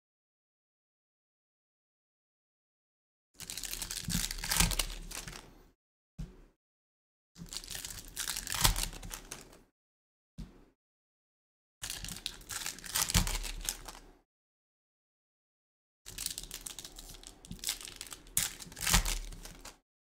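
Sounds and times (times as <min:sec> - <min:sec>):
foil wrappers crinkling and tearing: 0:03.4 - 0:05.4, 0:07.4 - 0:09.6, 0:11.8 - 0:14.0, 0:16.1 - 0:19.8.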